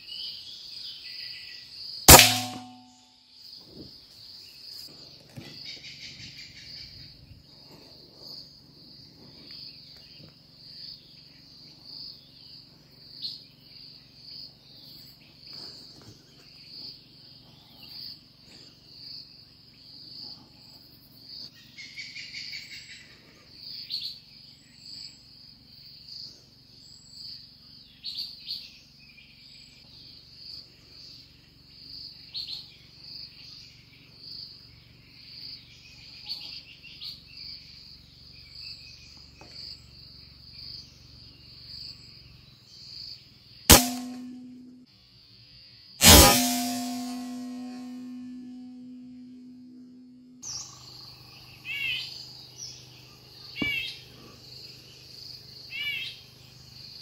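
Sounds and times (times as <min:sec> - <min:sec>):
insects trilling: 0:50.4 - 0:57.0.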